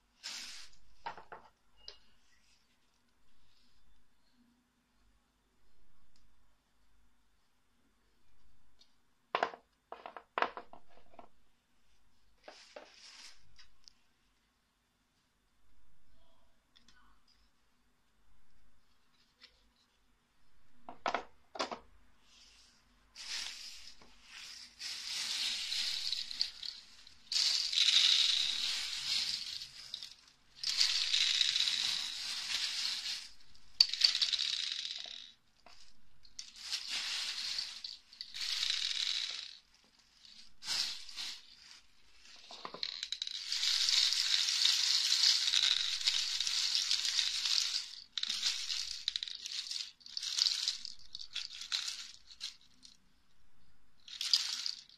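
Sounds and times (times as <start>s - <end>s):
capsules rattling on plastic tray: 24.8s - 39.7s, 42.2s - 53.0s, 54.0s - 54.9s.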